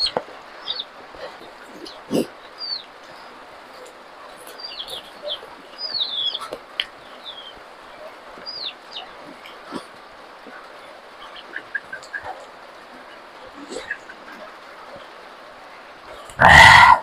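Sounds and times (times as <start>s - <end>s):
birds chirping: 0.0s - 17.0s
outdoor hiss: 0.0s - 17.0s.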